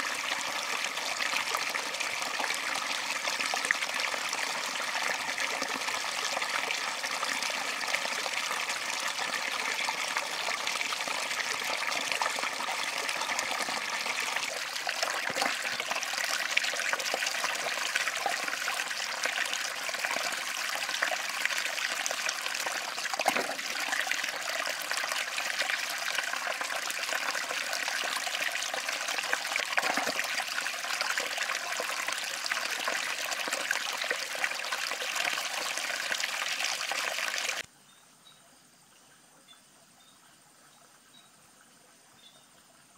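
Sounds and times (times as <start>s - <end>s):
stream trickling over rocks: 0.0s - 37.7s.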